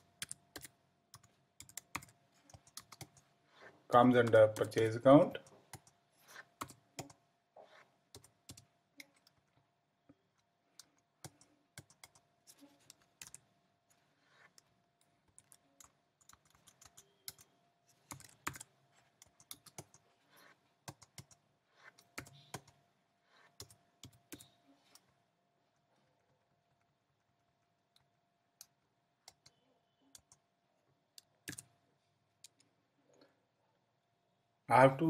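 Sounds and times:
computer keyboard typing: 0.0s - 3.3s, 4.0s - 7.2s, 8.1s - 9.5s, 10.7s - 13.4s, 14.3s - 22.8s, 23.4s - 25.0s, 27.1s - 30.4s, 31.2s - 31.8s.

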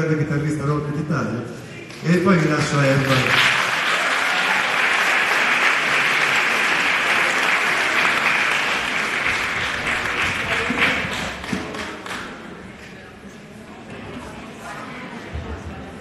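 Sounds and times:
audience applauding: 2.9s - 12.4s.

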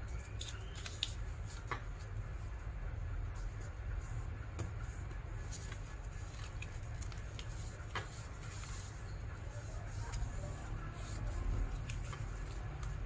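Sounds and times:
steady low hum: 0.0s - 13.0s
paper rustling and creasing: 0.1s - 2.1s, 5.4s - 13.0s.

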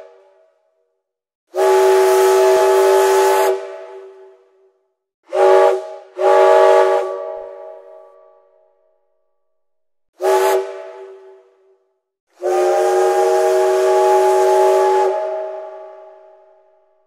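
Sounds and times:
steam whistle blowing a chord: 1.5s - 4.7s, 5.3s - 8.8s, 10.2s - 17.0s.

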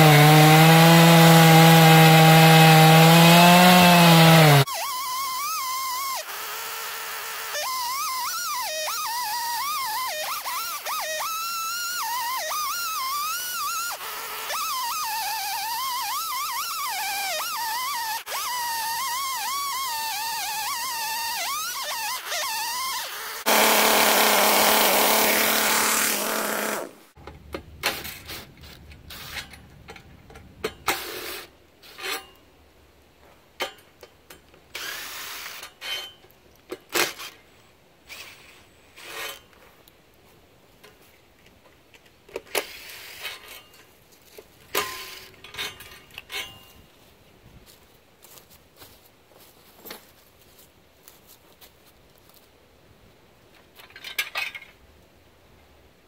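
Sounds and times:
chainsaw running: 0.0s - 27.0s
cordless drill spinning: 3.4s - 26.8s, 34.8s - 35.6s
metal rails clanking: 44.7s - 46.8s.

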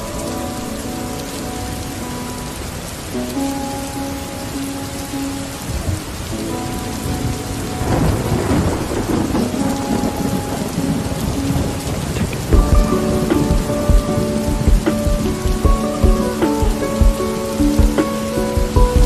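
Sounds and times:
rain falling: 0.0s - 19.0s
rolling thunder: 5.6s - 19.0s.

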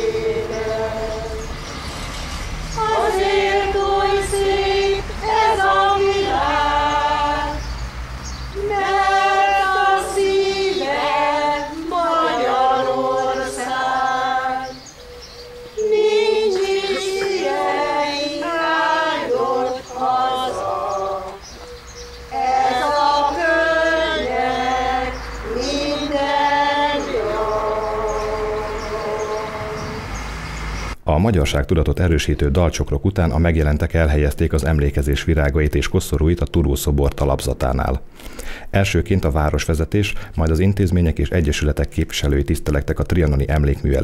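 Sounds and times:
women's choir singing unaccompanied: 0.0s - 31.0s.

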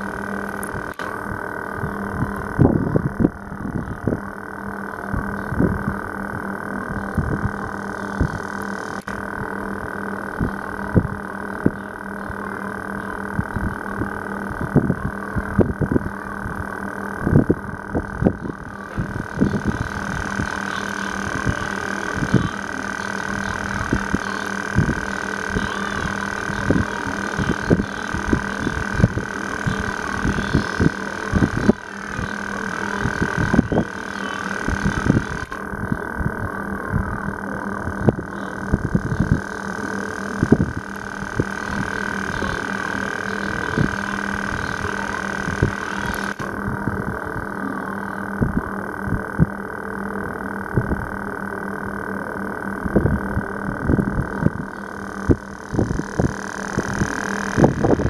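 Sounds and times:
low thumps and rumble: 0.0s - 11.8s, 13.2s - 20.6s
high whine: 0.0s - 58.0s
low hum: 0.0s - 58.0s.

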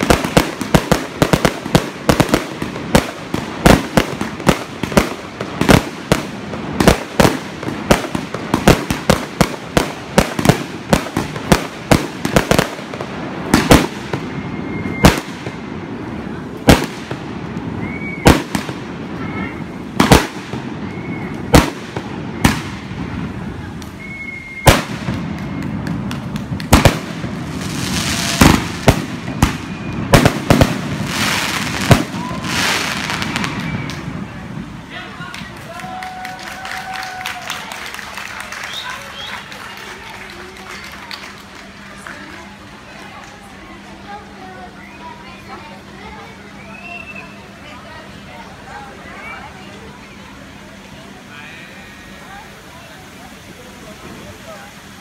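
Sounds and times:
fireworks bursting: 0.0s - 34.9s
crackling firework stars: 0.0s - 55.0s.

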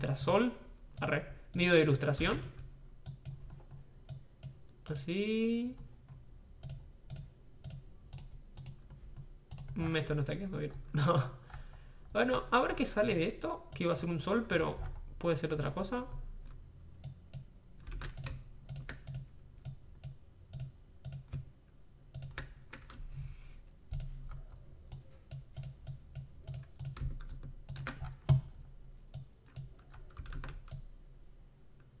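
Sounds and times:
low steady hum: 0.0s - 32.0s.

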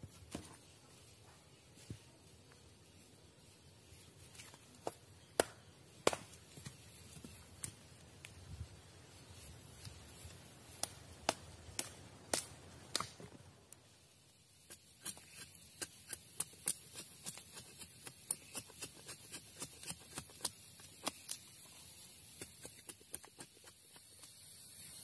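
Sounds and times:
machete chopping wood: 4.8s - 6.8s.

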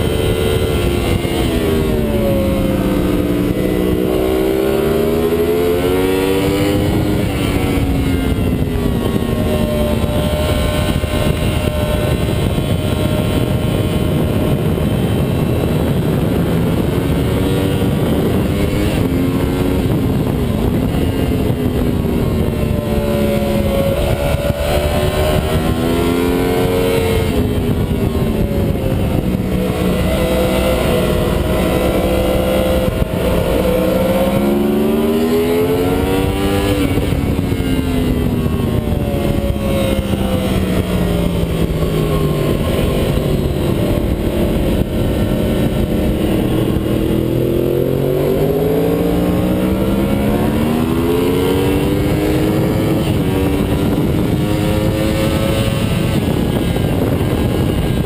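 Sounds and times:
motorcycle engine revving: 0.0s - 58.0s
wind rushing: 0.0s - 58.0s.

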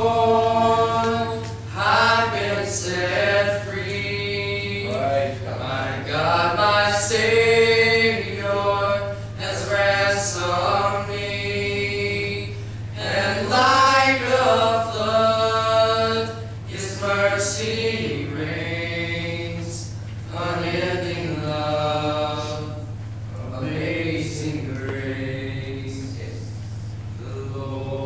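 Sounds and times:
low electrical hum: 0.0s - 28.0s
male voices singing a hymn: 0.0s - 28.0s.

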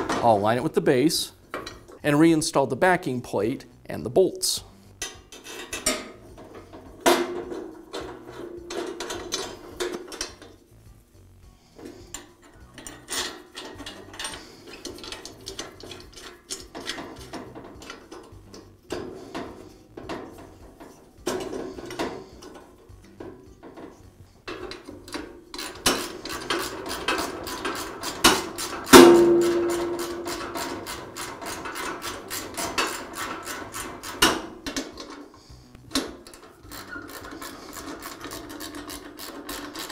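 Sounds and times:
metal clinks and scrapes: 4.7s - 39.9s
loud ringing metal clank: 28.9s - 30.8s.

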